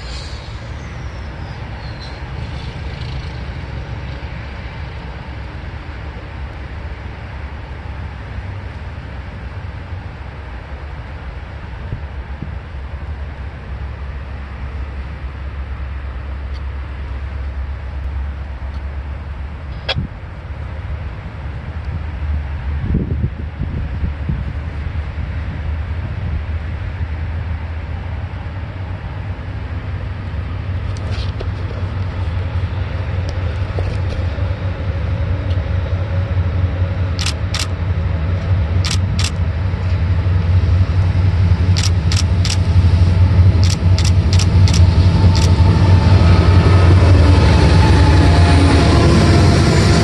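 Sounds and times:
diesel locomotive engine rumble: 0.0s - 50.0s
sharp ticks: 41.8s - 42.7s, 43.6s - 45.6s.

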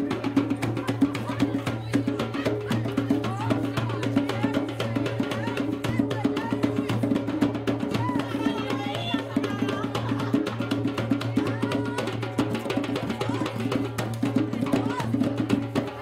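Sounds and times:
hand drums playing: 0.0s - 16.0s
people's voices: 0.0s - 16.0s.

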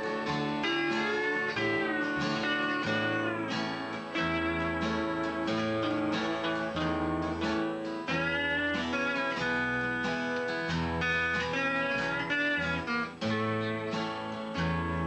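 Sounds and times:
electric bass guitar: 0.0s - 15.0s
lap steel guitar melody: 0.0s - 15.0s
strummed acoustic guitar: 0.0s - 15.0s.

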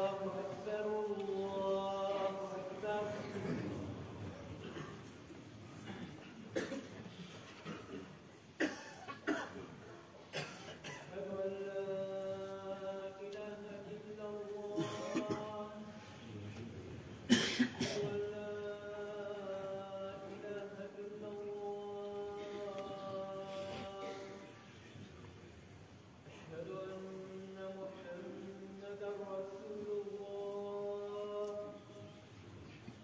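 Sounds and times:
man chanting call to prayer: 0.0s - 4.8s, 11.0s - 16.8s, 17.7s - 24.9s, 26.3s - 32.4s
throat clearing: 4.6s - 5.1s, 5.8s - 11.1s, 17.3s - 18.2s
person coughing: 5.8s - 7.0s, 7.6s - 9.7s, 10.3s - 11.2s, 14.8s - 15.6s, 17.3s - 18.2s.

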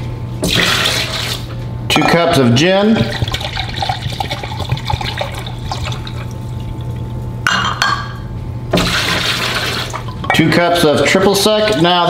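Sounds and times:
liquid pouring into a cup: 3.0s - 7.2s.

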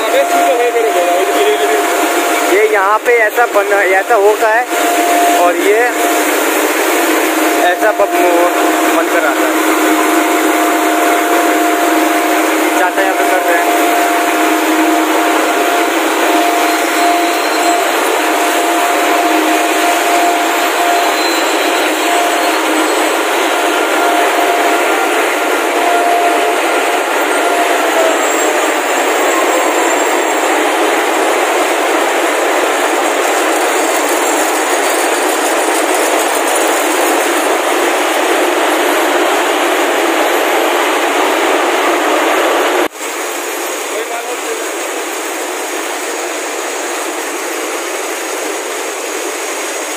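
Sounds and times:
thin steady whine: 0.0s - 49.9s
whir of spinning machines: 0.0s - 49.9s.

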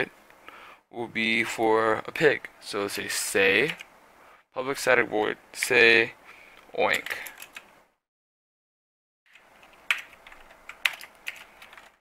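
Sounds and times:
keyboard typing: 6.9s - 7.7s, 9.3s - 12.0s.

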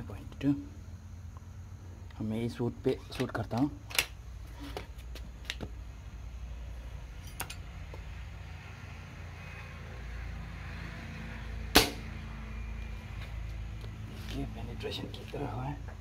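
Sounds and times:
air rifle shot: 11.7s - 12.0s.

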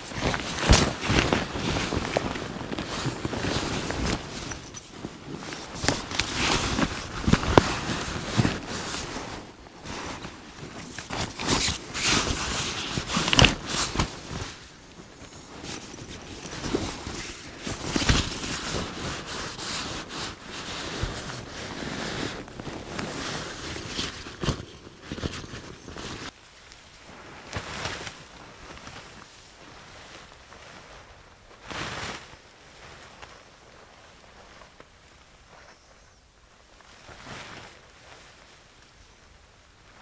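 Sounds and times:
gear rustling and scraping: 0.0s - 26.3s.

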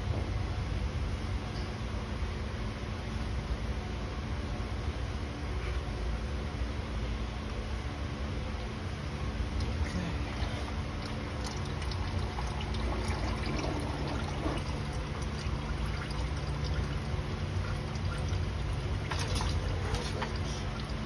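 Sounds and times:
low hum: 0.0s - 21.0s
oil trickling into drain pan: 10.4s - 21.0s.

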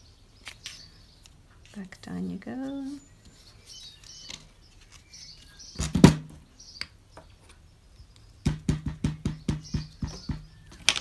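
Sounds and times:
faint birds chirping: 0.0s - 11.0s
stamp knocking on desk: 8.5s - 10.5s.

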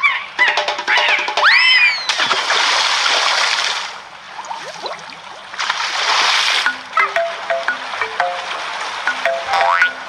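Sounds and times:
water spraying splash: 2.1s - 6.7s
water gurgling: 2.1s - 10.0s.

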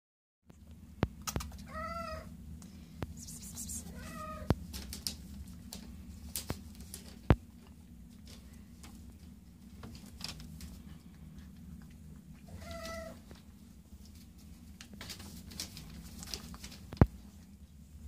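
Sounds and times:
steady low hum: 0.5s - 18.0s
cat meowing: 1.7s - 2.3s, 3.3s - 4.5s, 12.5s - 13.2s.

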